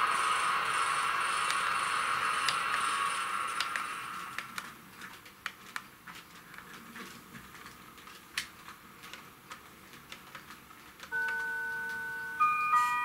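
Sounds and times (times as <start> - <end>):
faint clicks and ticks: 3.6 - 11.4.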